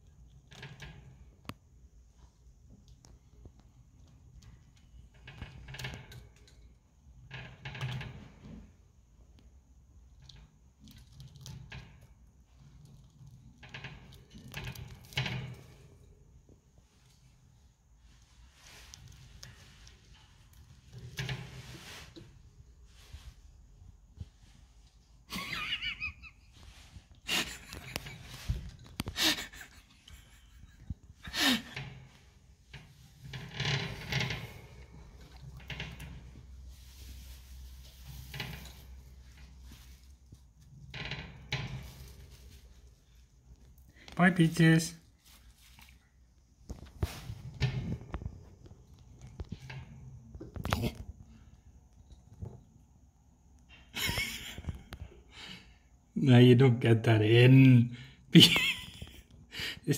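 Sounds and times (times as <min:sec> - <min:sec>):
hamster gnawing and crunching: 0:10.1 - 0:16.1, 0:46.7 - 0:51.4.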